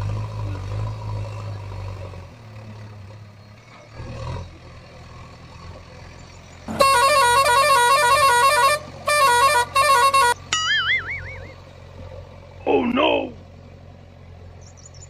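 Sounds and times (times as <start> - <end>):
warbling siren tone: 10.1 - 11.6.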